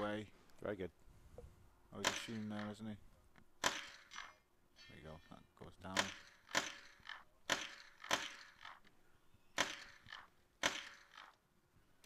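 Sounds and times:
rifle shots: 2.0 - 2.8, 3.6 - 4.4, 5.9 - 8.8, 9.6 - 11.4.

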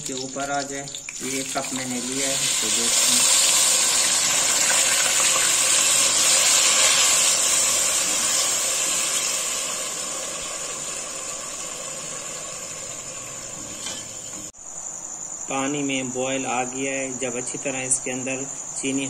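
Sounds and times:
water pouring into hot pot: 0.0 - 13.6
high hiss: 0.0 - 19.0.

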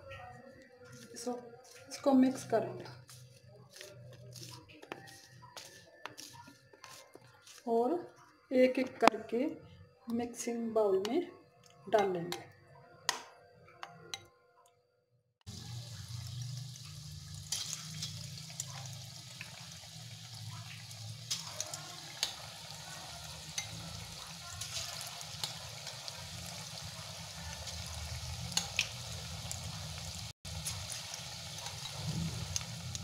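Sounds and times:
food deep-frying in oil: 15.5 - 33.0.

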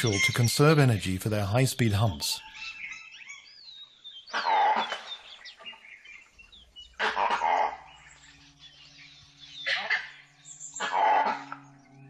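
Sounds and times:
wild dog harsh calls: 4.3 - 5.2, 7.0 - 8.1, 9.6 - 11.7.

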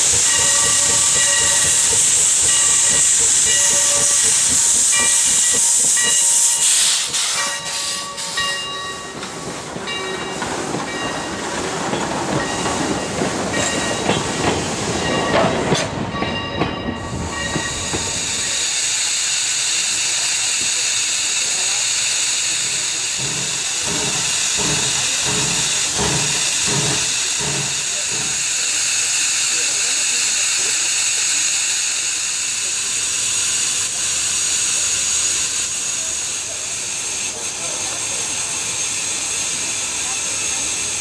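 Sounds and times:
locomotive bell ringing: 0.0 - 18.6
loud steam hiss: 0.0 - 41.0
steam locomotive exhaust beat: 0.0 - 41.0.

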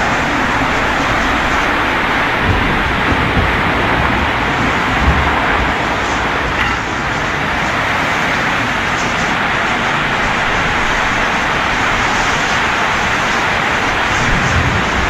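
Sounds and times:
heavy driving rain: 0.0 - 15.0
storm wind through trees: 0.0 - 15.0
wind buffeting microphone: 0.0 - 15.0.

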